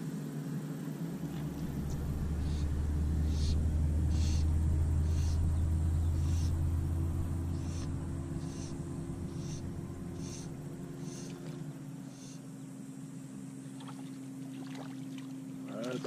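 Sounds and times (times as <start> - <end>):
low steady rumble: 0.0 - 16.0
faint water splashes: 13.6 - 16.0.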